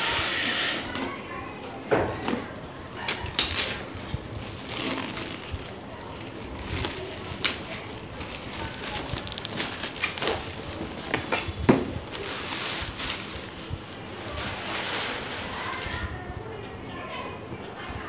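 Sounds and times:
plastic wrap crinkling: 0.7s - 16.0s.

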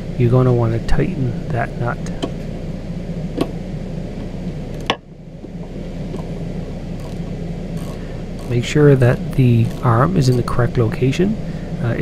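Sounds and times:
low hum: 0.0s - 12.0s
ratchet clicking: 7.0s - 8.8s, 9.4s - 10.5s.

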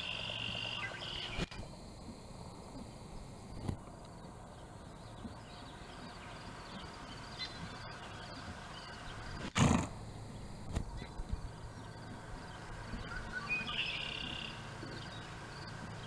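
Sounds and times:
horse snorting: 9.4s - 10.0s
faint bird chirps: 11.0s - 16.0s.

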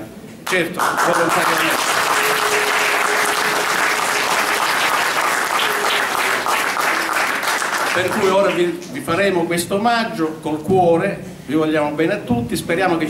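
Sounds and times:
audience applauding: 0.5s - 8.9s.

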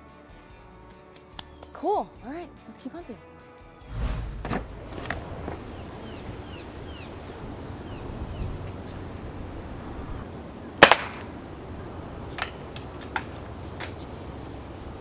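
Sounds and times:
short snap: 1.1s - 1.7s.

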